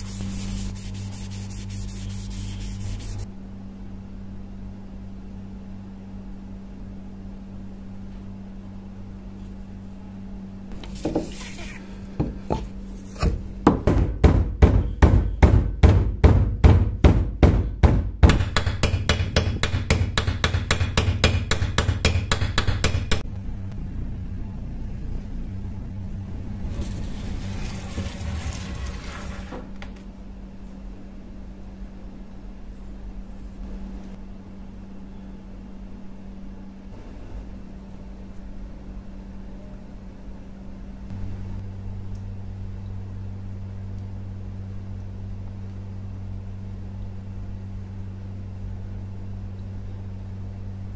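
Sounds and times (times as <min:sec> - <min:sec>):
low steady hum: 0:00.0 - 0:50.9
hammer knocking on handle: 0:13.6 - 0:23.2.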